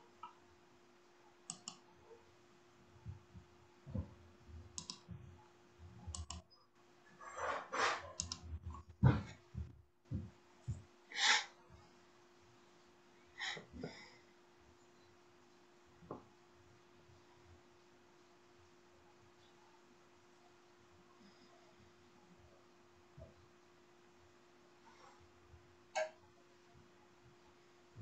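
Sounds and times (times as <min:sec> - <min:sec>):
faint hum: 0:00.0 - 0:28.0
faint clicks: 0:01.5 - 0:01.8, 0:04.8 - 0:05.1, 0:06.1 - 0:06.4.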